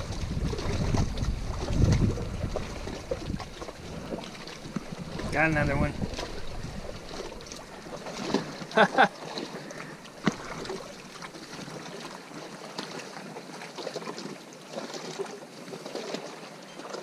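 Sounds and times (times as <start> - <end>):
wind on microphone: 0.0 - 9.0
lapping water: 0.0 - 17.0.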